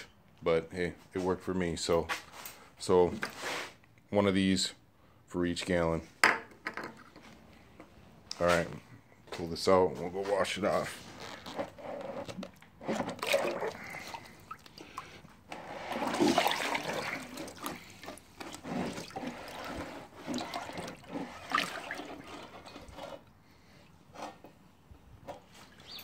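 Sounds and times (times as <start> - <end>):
liquid sloshing and splashing: 12.3 - 23.2
liquid running off metal rim: 12.9 - 23.1.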